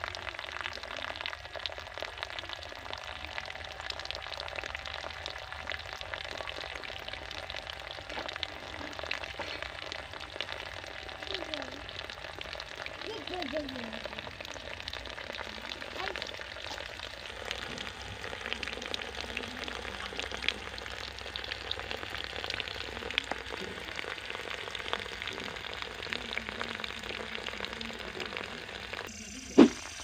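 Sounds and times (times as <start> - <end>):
water stream splashing into puddle: 29.0 - 30.0.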